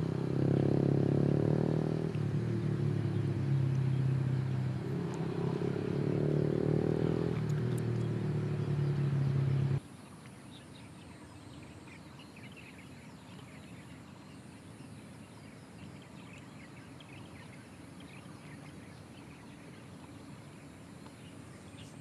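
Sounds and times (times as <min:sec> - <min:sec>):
loud vehicle engine: 0:00.0 - 0:09.8
low background noise: 0:00.0 - 0:22.0
small birds chirping: 0:00.0 - 0:22.0.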